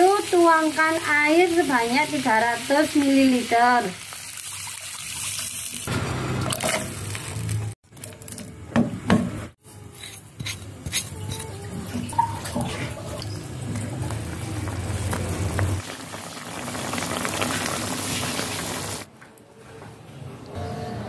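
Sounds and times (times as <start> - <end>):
pot of soup boiling: 12.7 - 19.1.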